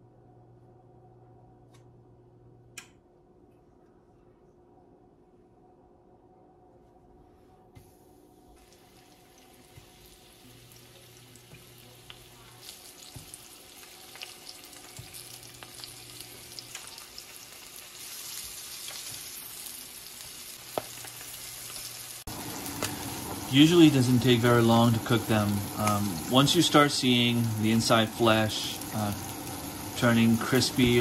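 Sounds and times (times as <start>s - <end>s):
fish sizzling in oil: 8.6s - 31.0s.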